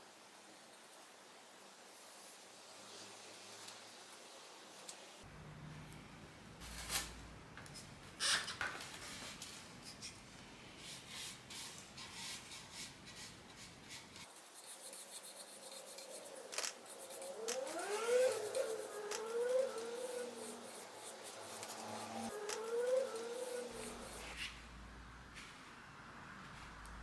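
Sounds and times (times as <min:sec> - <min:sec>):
paintbrush stroking wood: 0:10.9 - 0:24.6.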